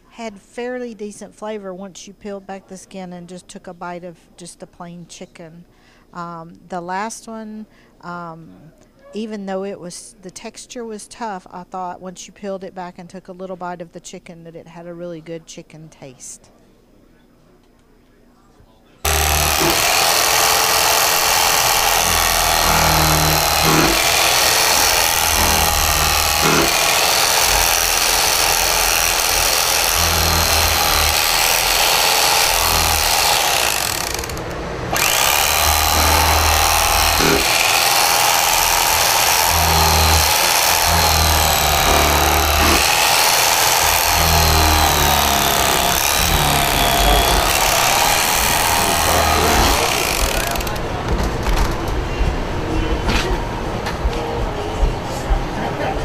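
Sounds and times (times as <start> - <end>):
electric carving knife sawing meat: 19.1 - 50.8.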